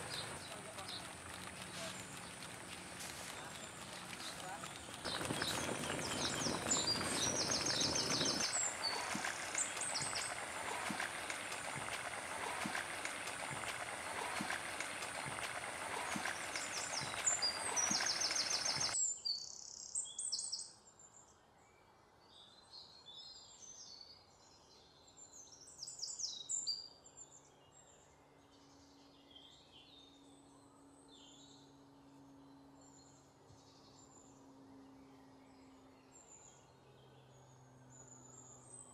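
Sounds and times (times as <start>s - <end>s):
birds chirping: 0.0s - 19.0s
stew boiling in a pot: 0.0s - 19.0s.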